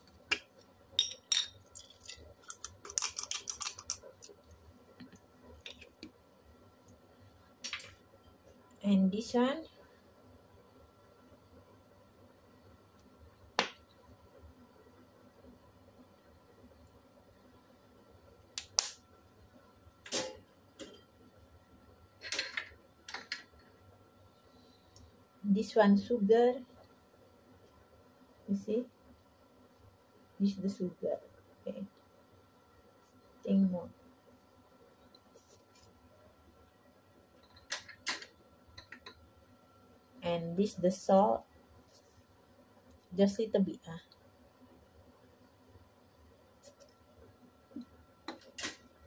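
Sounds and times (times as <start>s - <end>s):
pepper grinder clicking: 1.8s - 4.3s
seasoning bottle shaken: 1.8s - 4.3s.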